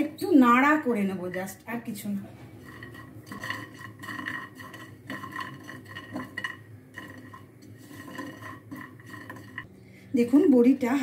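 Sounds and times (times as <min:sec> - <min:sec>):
spatula scraping a pan: 0:02.3 - 0:09.7
lentil dumplings rattling in a pan: 0:02.5 - 0:09.7.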